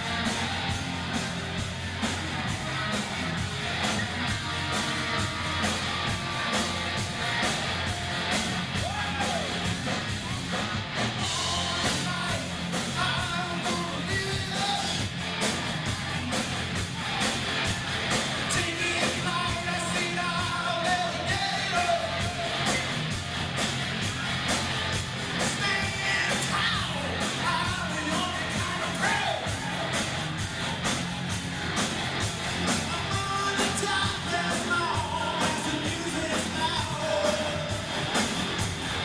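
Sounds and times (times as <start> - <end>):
electric guitars: 0.0 - 39.0
steady drum beat: 0.0 - 39.0
person singing: 11.3 - 15.0, 18.5 - 22.8, 32.8 - 37.8.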